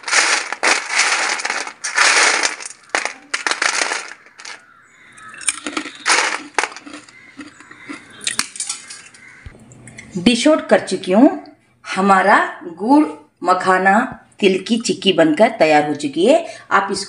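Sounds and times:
coated nuts rattling on steel plate: 0.0s - 4.6s, 5.6s - 7.2s, 8.4s - 9.2s.

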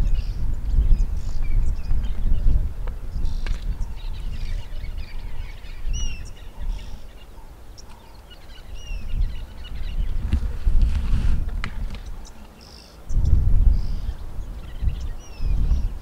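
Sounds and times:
small birds chirping: 0.0s - 16.0s
whistled bird calls: 3.1s - 10.2s.

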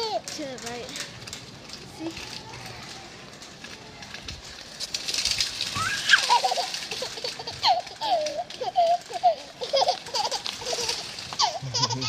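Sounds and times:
toddler laughing: 5.8s - 12.0s.

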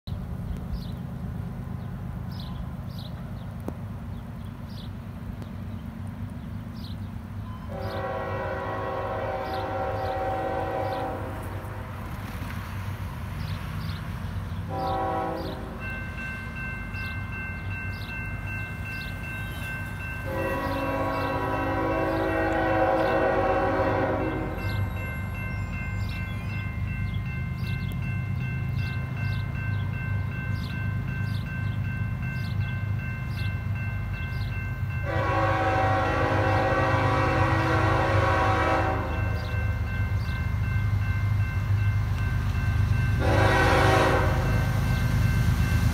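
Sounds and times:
crossing warning bell ringing: 7.4s - 11.8s, 14.7s - 45.9s
locomotive air horn blasts: 7.6s - 11.8s, 14.7s - 15.8s, 20.2s - 24.8s, 35.0s - 39.6s, 43.2s - 44.7s.

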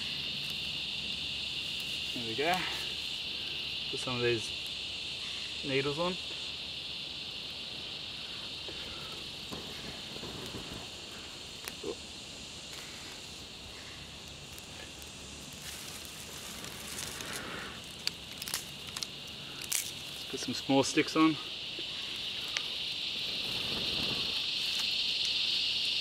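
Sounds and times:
high-pitched insect chorus: 0.0s - 26.0s
small fire crackling: 0.0s - 26.0s
breathy rush of air: 2.3s - 4.0s, 4.9s - 18.3s.

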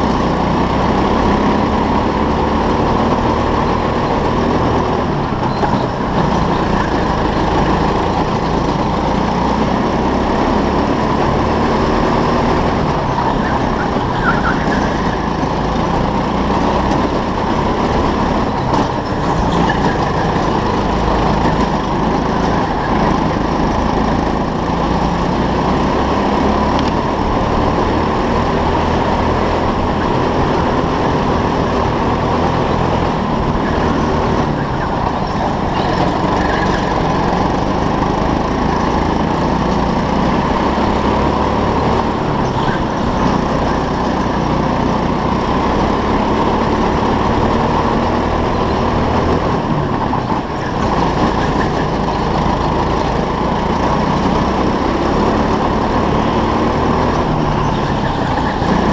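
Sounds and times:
go-kart engine drone: 0.0s - 58.9s.

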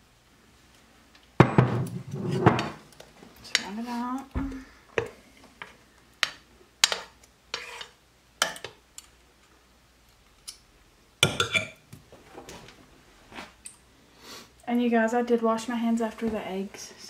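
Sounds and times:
metal spoon clinking on stoneware: 11.2s - 11.8s.

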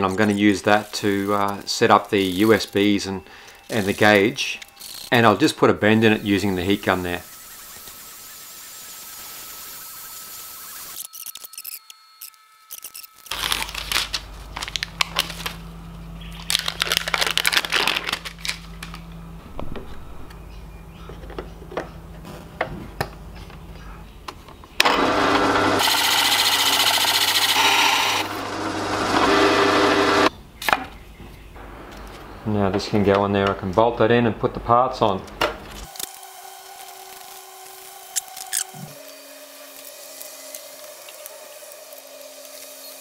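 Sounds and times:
low hum: 12.0s - 24.3s, 31.5s - 34.6s
drill press cutting acrylic: 24.8s - 30.3s, 35.8s - 43.0s.

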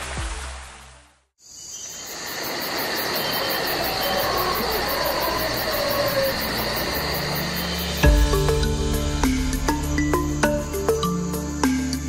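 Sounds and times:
insects chirring: 1.4s - 12.0s
faint bird calls: 3.0s - 8.0s
high pulsing trill: 7.5s - 12.0s.

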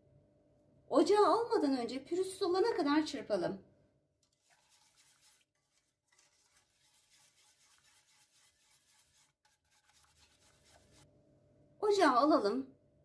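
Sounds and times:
wire whisk scraping a metal pot: 4.2s - 11.1s.

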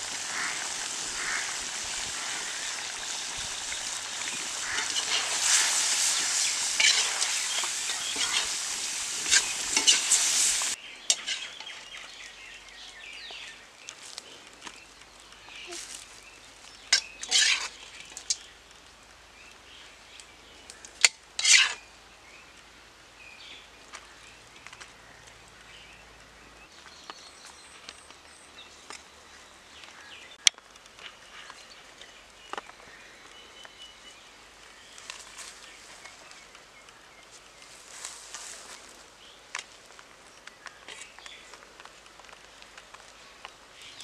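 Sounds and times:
metal ladle scraping wok: 0.2s - 11.8s, 17.0s - 17.8s, 21.4s - 21.8s.

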